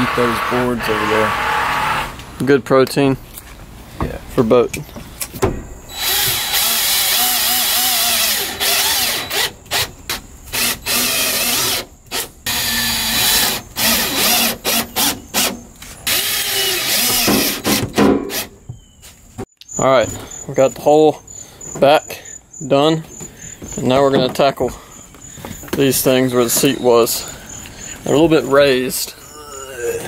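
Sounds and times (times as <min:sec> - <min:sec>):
cordless drill bursts: 0:05.9 - 0:09.9, 0:10.5 - 0:18.5.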